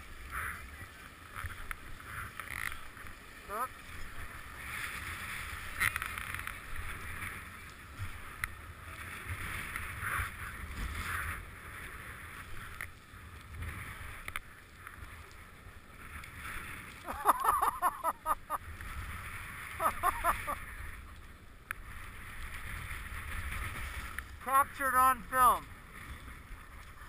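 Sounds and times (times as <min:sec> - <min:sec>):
skis sliding on snow: 0:00.0 - 0:27.0
person calling out: 0:24.4 - 0:25.6.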